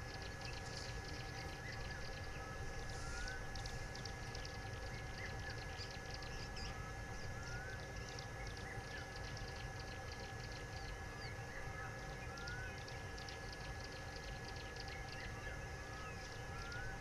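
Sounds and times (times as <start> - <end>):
birds whistling rising notes: 1.2 - 4.1, 14.6 - 17.0.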